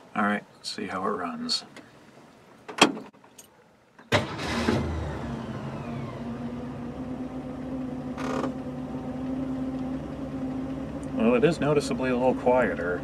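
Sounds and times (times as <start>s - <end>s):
car engine starting and idling: 4.1s - 13.0s.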